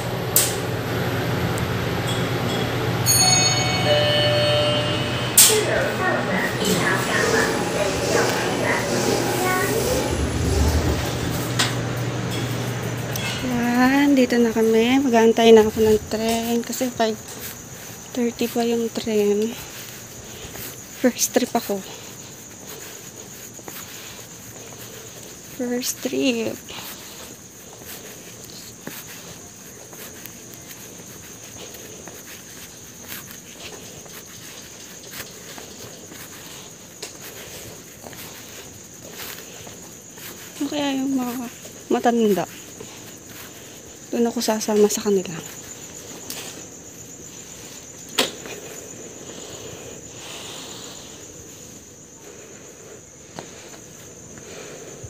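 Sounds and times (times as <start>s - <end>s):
high-pitched trill: 2.1s - 11.6s
insects trilling: 5.4s - 55.0s
footsteps on concrete: 10.1s - 54.6s.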